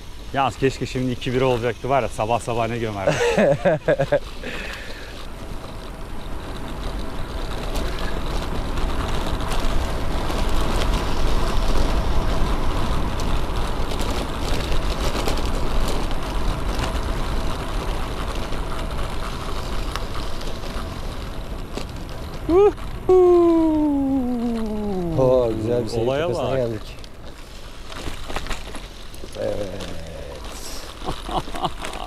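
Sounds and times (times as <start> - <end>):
bike tyre rumble: 0.0 - 32.0
wind rushing over microphone: 5.5 - 26.8.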